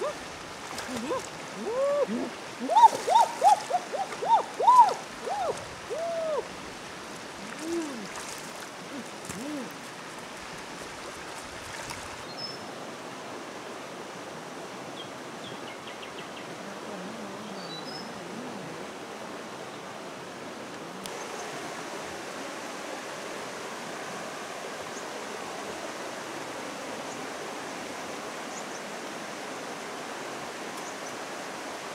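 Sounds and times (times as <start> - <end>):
muddy water sloshing and plopping: 0.0 - 1.6, 7.4 - 12.2
river water flowing: 0.0 - 31.9.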